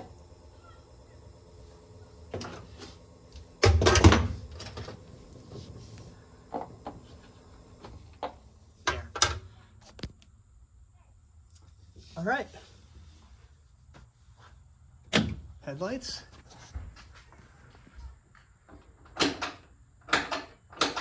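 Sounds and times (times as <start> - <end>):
faint low hum: 0.0 - 12.1
handling knocks and clunks: 3.6 - 5.7.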